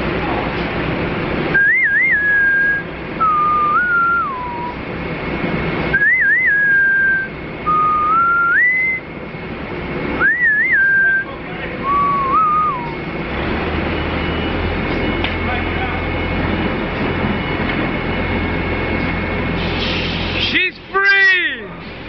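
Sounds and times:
person whistling a tune: 0:01.6 - 0:04.8, 0:06.0 - 0:09.1, 0:10.2 - 0:13.0.

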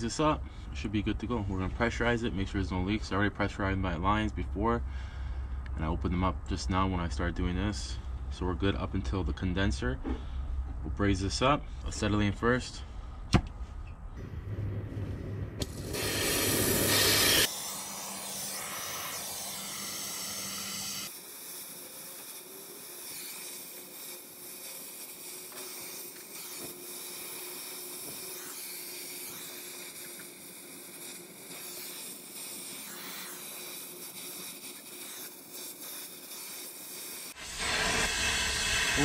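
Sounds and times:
torch flame hissing: 0:14.2 - 0:39.0.

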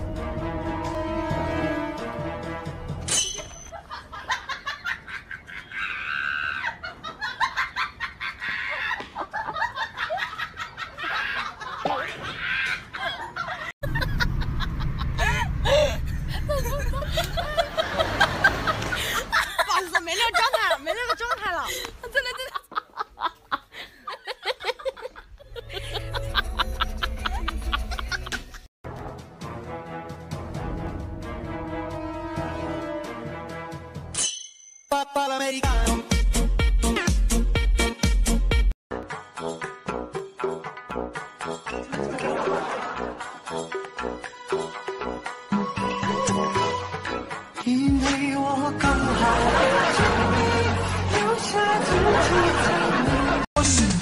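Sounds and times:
person snickering and laughing: 0:06.6 - 0:28.7
music with quick beat and bass: 0:35.6 - 0:38.7.

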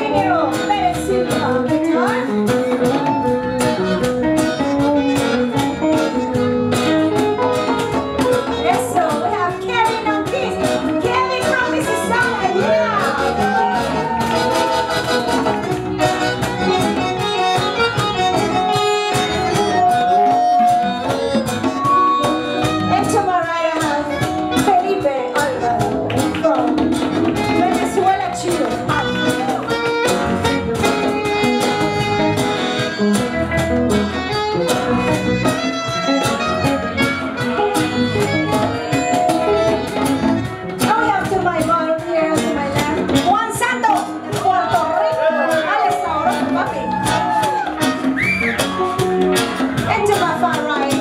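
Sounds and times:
woman singing: 0:00.0 - 0:02.3, 0:22.9 - 0:26.9, 0:40.8 - 0:46.7, 0:49.9 - 0:51.0
saxophone: 0:00.0 - 0:26.2, 0:28.9 - 0:40.9, 0:45.0 - 0:50.0
electric guitar: 0:00.0 - 0:51.0
keyboard: 0:00.0 - 0:51.0.

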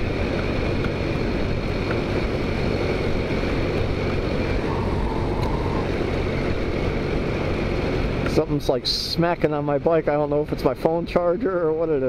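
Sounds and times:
scooter engine droning: 0:00.0 - 0:08.3
wind rush on microphone: 0:00.0 - 0:11.1.

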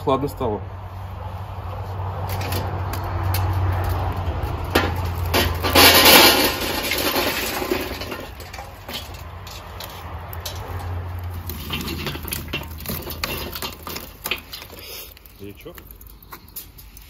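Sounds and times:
charcoal briquettes clattering into grill: 0:02.2 - 0:17.0
metal scraper pushing coals: 0:03.8 - 0:17.0.

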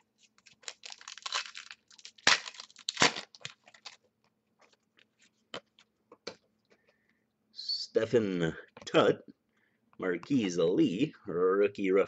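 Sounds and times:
foil wrapper crackling and tearing: 0:00.4 - 0:04.1.

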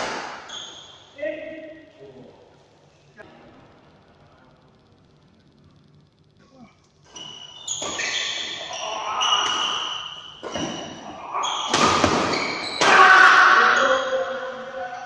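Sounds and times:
shoes squeaking on court floor: 0:00.4 - 0:01.1, 0:07.0 - 0:12.9
rackets striking shuttlecock: 0:07.1 - 0:08.6, 0:09.3 - 0:13.3
players shouting: 0:11.1 - 0:15.0.

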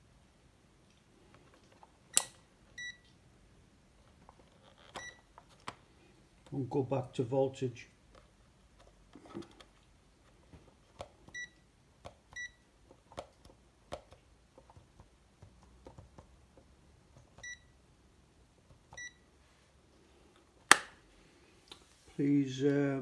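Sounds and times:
button and dial clicks: 0:02.1 - 0:03.0.

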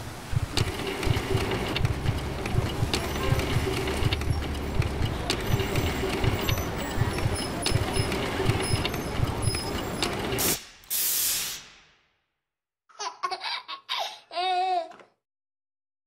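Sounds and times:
dense noisy background: 0:00.0 - 0:10.6
scattered clicks: 0:00.5 - 0:10.4
pump spray bottle hiss: 0:10.4 - 0:11.7.

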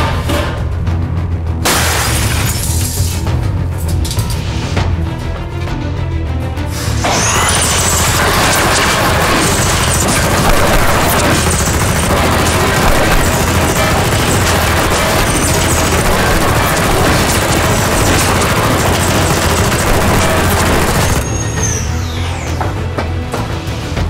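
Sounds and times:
background music: 0:00.0 - 0:24.0
toy blaster rapid fire: 0:07.1 - 0:21.4.

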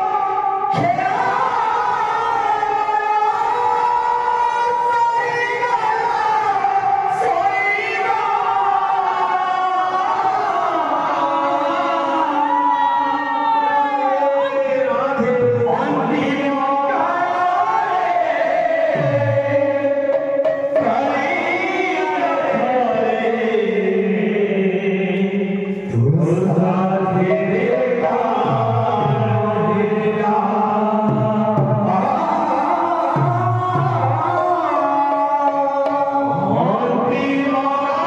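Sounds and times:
men singing a chant together: 0:00.0 - 0:38.0.

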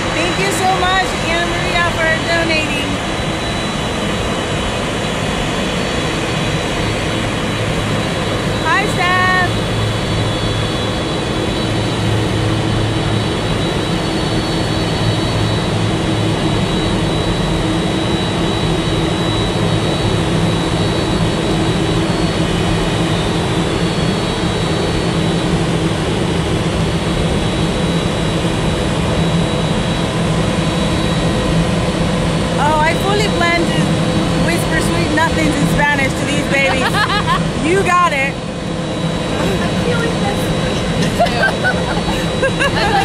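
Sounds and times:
jet engine roar: 0:00.0 - 0:43.0.

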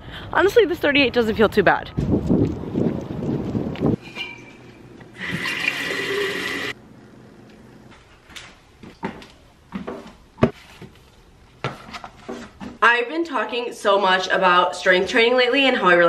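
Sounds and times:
water running into a tumbler: 0:05.1 - 0:06.8.

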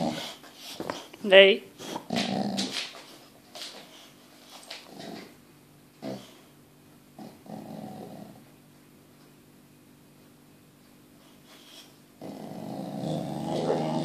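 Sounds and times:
dog grumbling and whining: 0:00.0 - 0:00.5, 0:01.8 - 0:03.0, 0:04.8 - 0:05.4, 0:06.0 - 0:06.5, 0:11.6 - 0:14.0.

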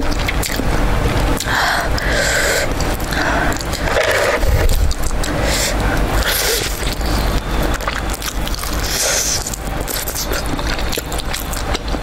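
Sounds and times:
biting and chewing food: 0:00.0 - 0:12.0
wet mouth clicks: 0:02.9 - 0:12.0.

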